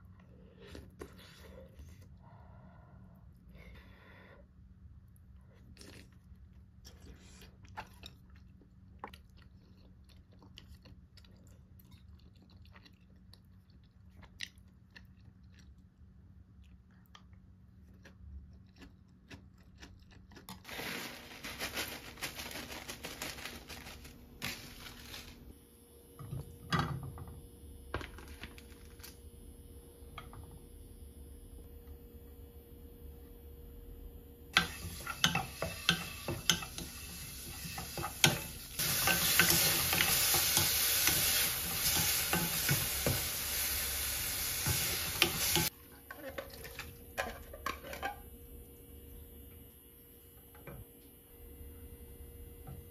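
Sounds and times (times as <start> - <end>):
person chewing: 5.4 - 20.7
plastic bag rustling: 20.6 - 25.6, 28.0 - 29.2
spatula scraping a pan: 34.6 - 43.3
meat sizzling in a saucepan: 34.6 - 45.7.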